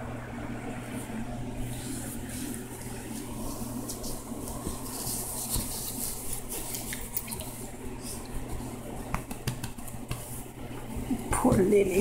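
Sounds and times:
steady low hum: 0.0 - 12.0
blanket fabric rustling: 1.7 - 6.9.

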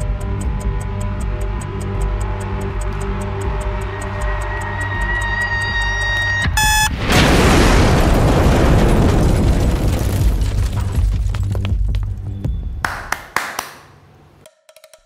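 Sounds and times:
bomb timer ticking: 0.0 - 6.9
timer beeping: 0.0 - 7.0
loud rumbling explosion: 6.9 - 11.4.

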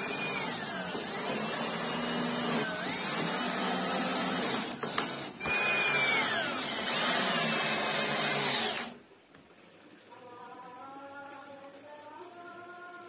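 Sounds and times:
cordless drill into plywood: 0.0 - 9.0
drill click: 0.0 - 9.0.

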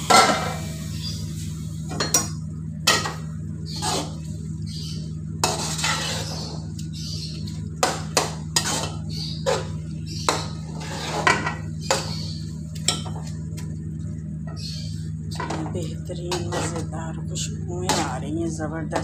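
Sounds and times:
low hum: 0.0 - 19.0
spoon scraping metal pot: 5.4 - 6.5, 8.6 - 9.7, 16.3 - 16.9.

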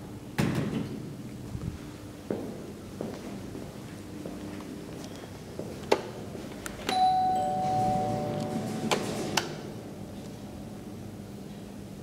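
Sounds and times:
two-note elevator chime: 6.9 - 8.9.

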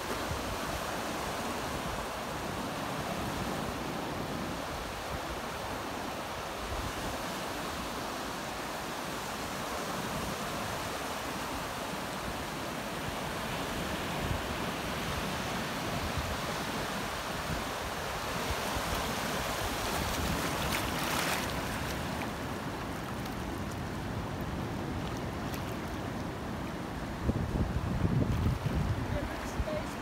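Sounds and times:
small waves washing in: 0.0 - 27.2
wind rumble on microphone: 23.4 - 30.0.

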